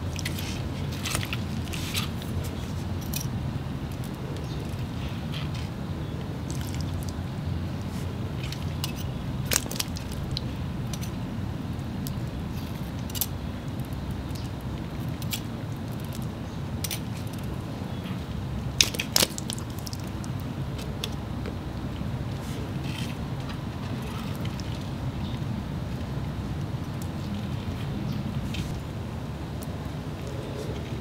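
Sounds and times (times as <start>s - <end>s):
steady low rumble: 0.0s - 31.0s
frog eating clicks and crunches: 6.4s - 11.2s, 18.7s - 28.8s.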